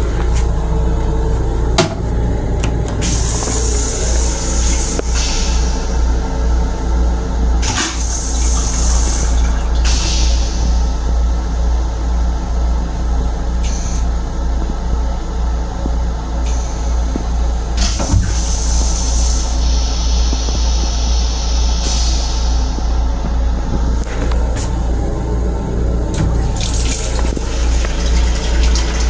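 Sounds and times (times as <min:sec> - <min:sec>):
railcar low rumble: 0:00.0 - 0:29.0
toilet flushing: 0:01.3 - 0:06.4, 0:07.4 - 0:11.6, 0:17.6 - 0:22.9, 0:24.2 - 0:29.0.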